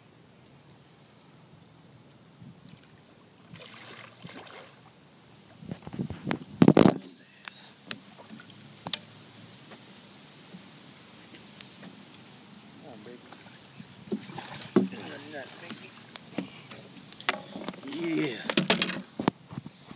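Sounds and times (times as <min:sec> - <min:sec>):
sharp clicks: 0:00.7 - 0:02.4
water sloshing and splashing: 0:02.6 - 0:05.0, 0:07.9 - 0:08.7, 0:13.2 - 0:19.1.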